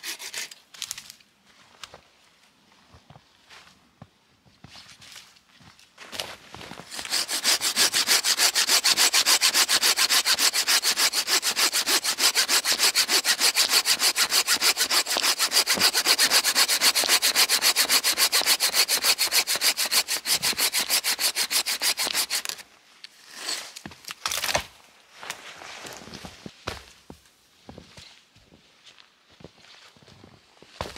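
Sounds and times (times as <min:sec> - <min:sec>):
hand saw cutting branch: 0:00.0 - 0:00.6, 0:06.9 - 0:22.6.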